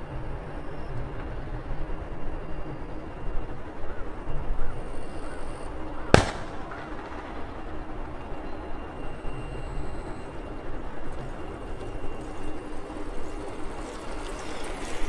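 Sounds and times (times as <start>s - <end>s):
airliner noise: 3.0s - 15.0s.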